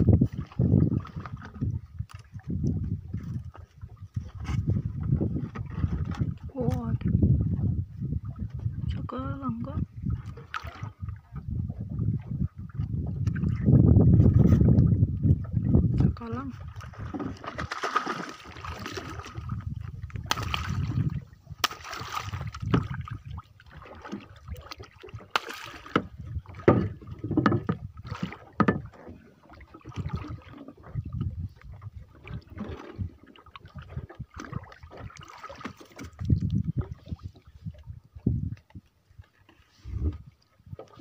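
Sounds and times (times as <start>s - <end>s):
water splashing against boat: 0.0s - 41.0s
knocks on wooden hull: 25.2s - 29.0s.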